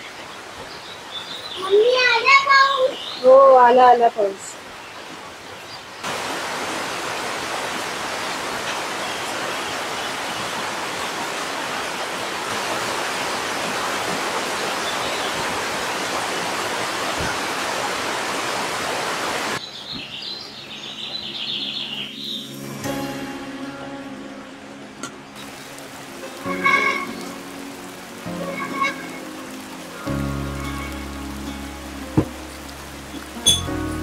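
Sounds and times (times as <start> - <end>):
rain pouring: 0.0 - 19.6, 22.4 - 34.0
bird chirping: 19.6 - 22.6.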